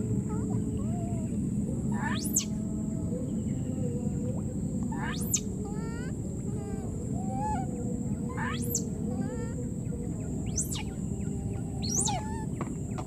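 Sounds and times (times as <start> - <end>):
low outdoor rumble: 0.0 - 13.0
steady high-pitched drone: 0.0 - 13.0
high-pitched animal calls: 2.0 - 2.6, 4.9 - 7.7, 8.3 - 9.6, 10.5 - 10.9, 11.8 - 12.5.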